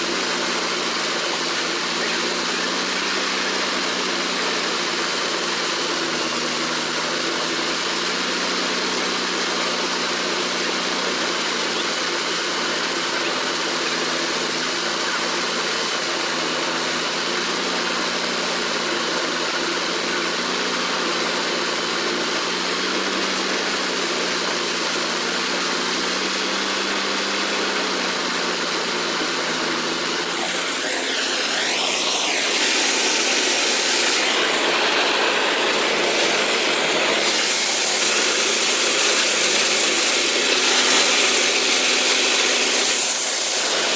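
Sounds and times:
tractor engine driving thresher: 0:00.0 - 0:43.9
hiss with sweeping pitch: 0:30.2 - 0:43.9.

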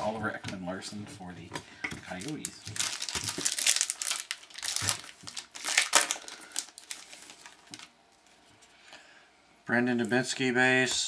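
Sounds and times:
foil wrapper crinkling: 0:02.1 - 0:08.2
cards rustling: 0:02.1 - 0:08.7.

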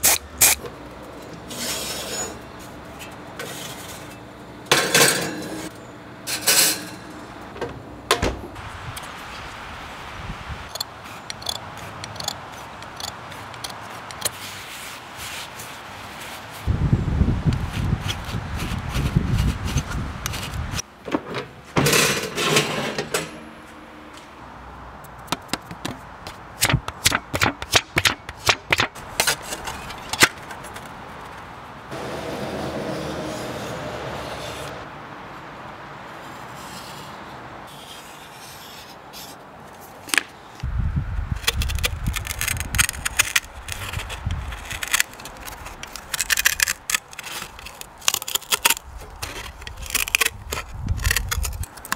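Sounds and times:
metal parts rubbing and scraping: 0:01.4 - 0:07.2, 0:10.7 - 0:16.6.

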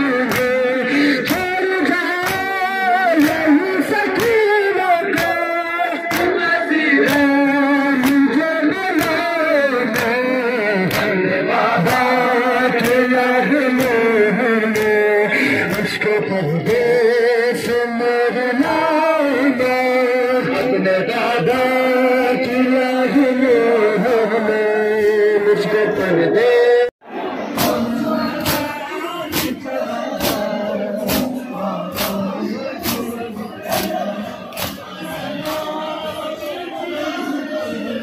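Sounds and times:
men chanting a lament: 0:00.0 - 0:38.0
chest-beating slaps: 0:28.4 - 0:28.7, 0:29.3 - 0:29.6, 0:30.2 - 0:35.7.

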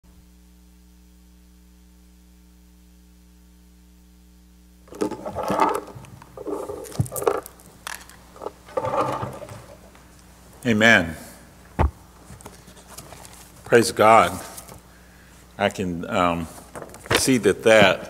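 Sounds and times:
electrical hum: 0:00.1 - 0:18.0
papers rustling: 0:04.9 - 0:10.0, 0:12.2 - 0:14.8.

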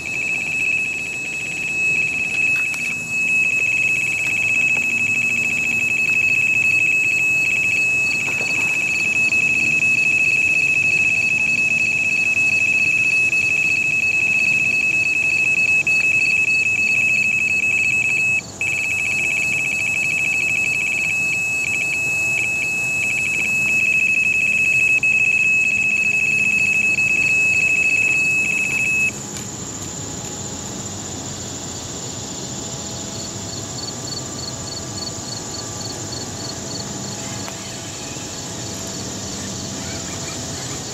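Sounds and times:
bite alarm tone and beeps: 0:00.0 - 0:29.2
insects chirring: 0:00.0 - 0:40.9.

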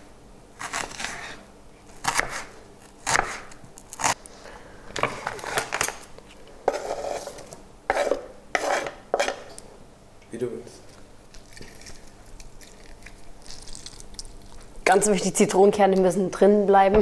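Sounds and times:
knife scraping board: 0:00.6 - 0:01.4, 0:06.7 - 0:09.5
knife strokes on wooden board: 0:06.7 - 0:09.4.

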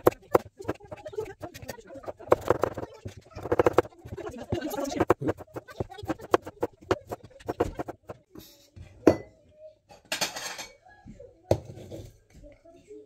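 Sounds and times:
dishes and cutlery clinking: 0:10.0 - 0:10.8.

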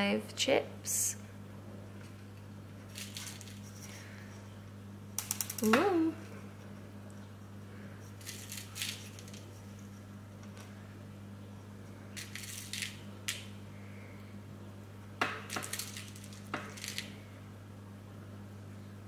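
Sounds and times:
crystal chips clinking: 0:02.9 - 0:03.7, 0:08.2 - 0:09.5, 0:12.2 - 0:13.0, 0:15.5 - 0:17.2.

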